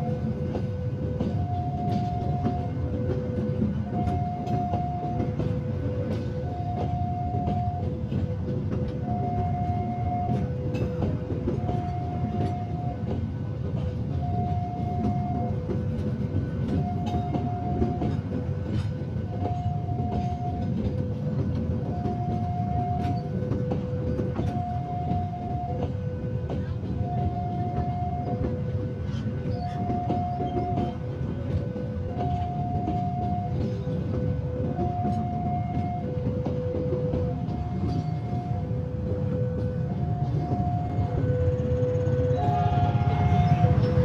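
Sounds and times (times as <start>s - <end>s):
train carriages rumbling: 0.0s - 44.0s.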